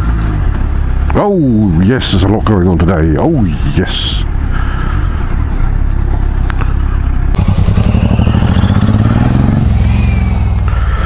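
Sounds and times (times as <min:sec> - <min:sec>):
motorcycle engine running: 0:04.3 - 0:11.0.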